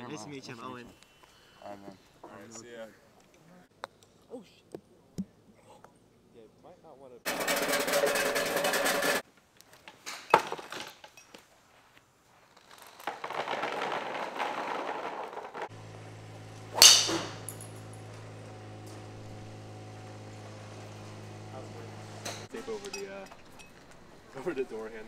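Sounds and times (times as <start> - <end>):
golf balls rattling into basket: 7.3 - 9.2, 12.6 - 15.8, 16.8 - 18.2
golf club striking ball: 16.6 - 18.0.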